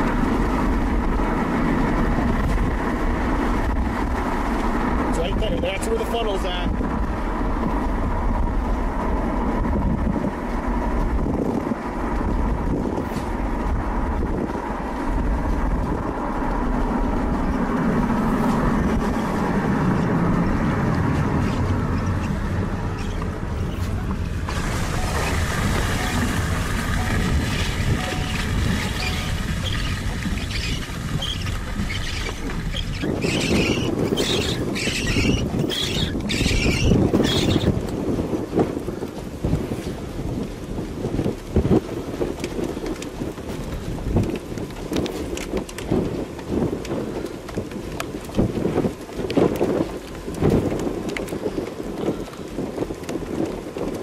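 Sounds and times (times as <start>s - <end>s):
car engine: 0.0s - 39.6s
car tyre noise: 0.0s - 54.0s
wind noise: 0.0s - 54.0s.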